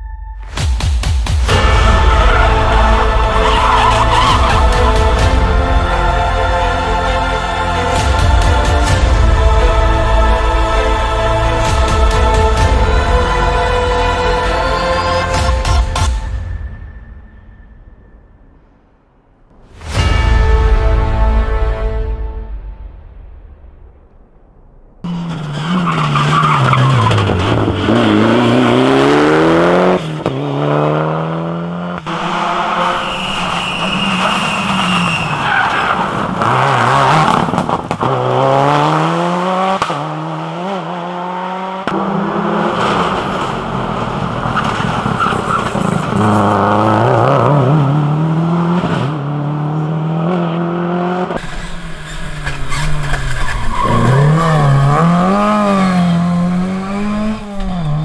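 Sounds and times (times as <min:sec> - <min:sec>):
rally car engines revving: 0:01.9 - 0:05.2, 0:25.0 - 0:58.0.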